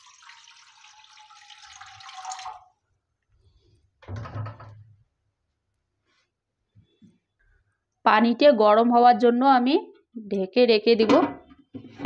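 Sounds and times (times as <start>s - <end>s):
water pouring into wok: 0.0s - 2.7s.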